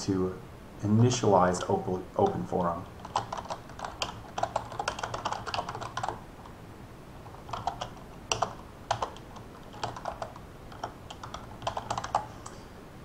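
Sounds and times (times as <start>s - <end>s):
typing on computer keyboard: 1.6s - 6.2s, 7.3s - 12.3s.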